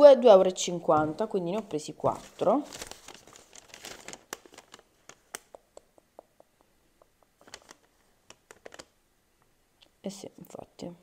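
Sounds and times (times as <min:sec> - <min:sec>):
paper receipt rustling: 0:01.6 - 0:05.5, 0:07.4 - 0:08.9
paper ticks and crinkles: 0:01.6 - 0:05.8, 0:07.3 - 0:09.0.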